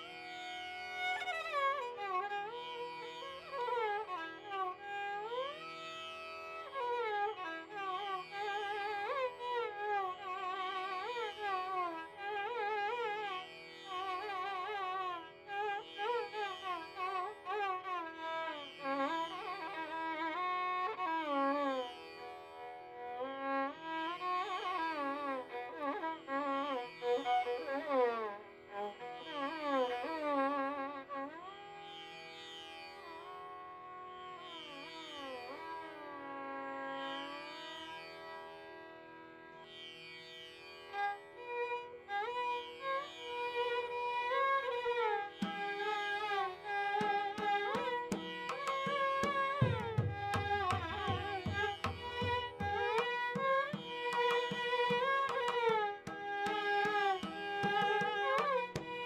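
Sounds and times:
violin melody with sliding notes: 0:00.0 - 0:31.5, 0:41.4 - 0:59.0.

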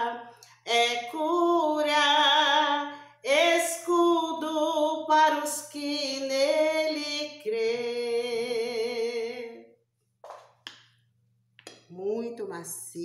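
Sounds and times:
woman singing unaccompanied: 0:00.0 - 0:09.6.

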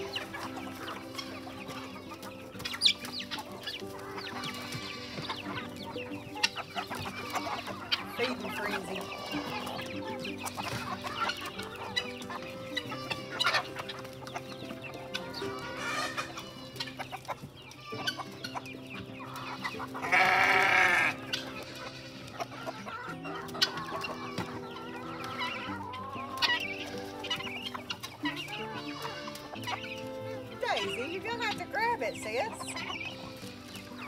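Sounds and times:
background music: 0:00.0 - 0:34.0
chickens clucking: 0:00.0 - 0:34.0
loud animal call: 0:19.5 - 0:23.1.

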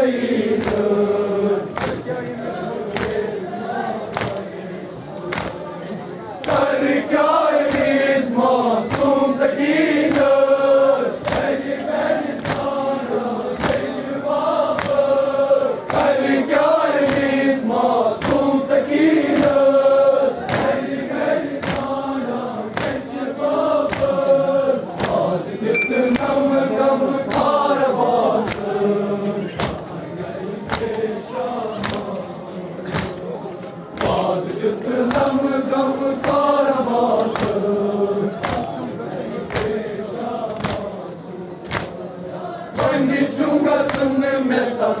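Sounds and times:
men chanting in unison: 0:00.0 - 0:45.0
rhythmic chest slaps: 0:00.0 - 0:45.0.

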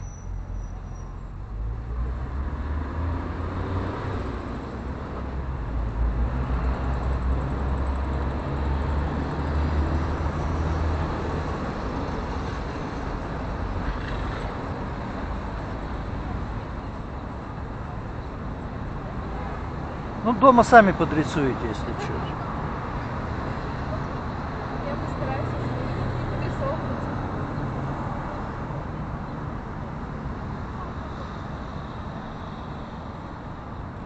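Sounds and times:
street traffic: 0:00.0 - 0:34.0.

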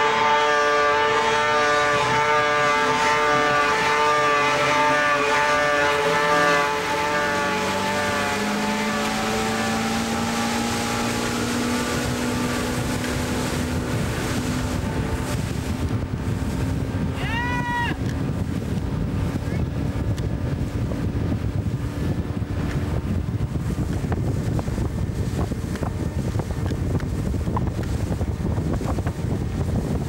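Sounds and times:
engines whining at high revs: 0:00.0 - 0:24.2.

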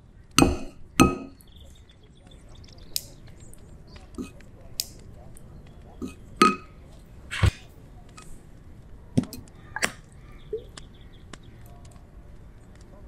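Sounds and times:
wooden spoon tapping ceramic bowl: 0:06.4 - 0:06.7.

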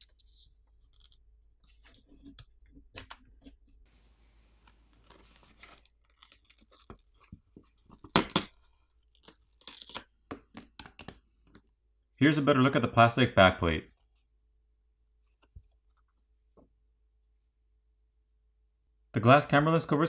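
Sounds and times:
small clicks and crackles: 0:04.6 - 0:08.2.

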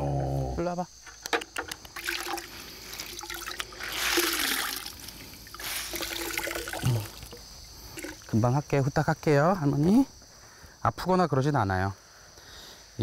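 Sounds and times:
water splashing into plastic bucket: 0:01.3 - 0:08.3.

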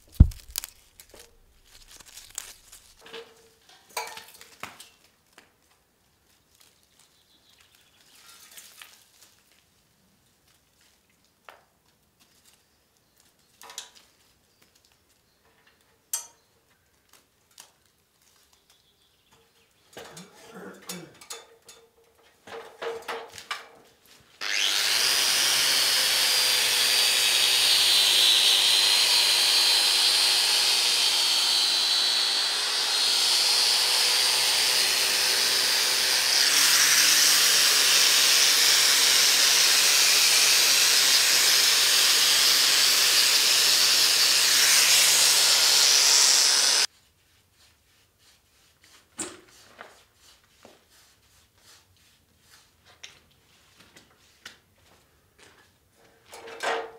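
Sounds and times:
angle grinder grinding metal: 0:24.4 - 0:46.9.

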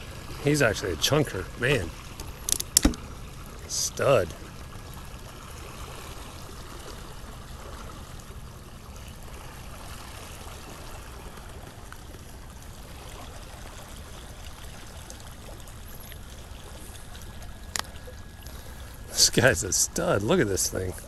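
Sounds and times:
river water trickling: 0:00.0 - 0:21.0
sharp click: 0:02.2 - 0:03.1.

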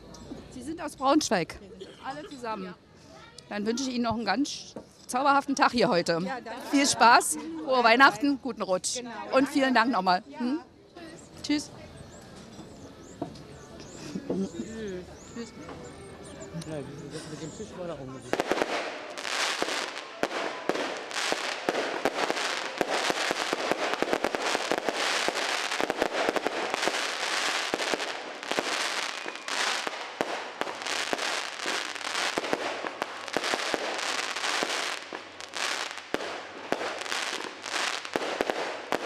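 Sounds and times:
fireworks bangs and crackles: 0:18.2 - 0:39.0.

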